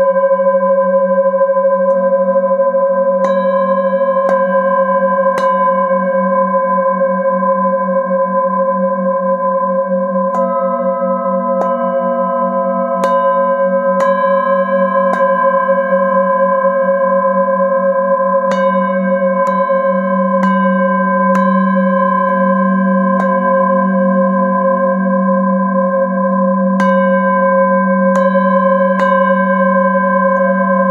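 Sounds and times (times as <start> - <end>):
singing bowls ringing: 0.0 - 30.9
low pulsing hum: 19.6 - 30.9.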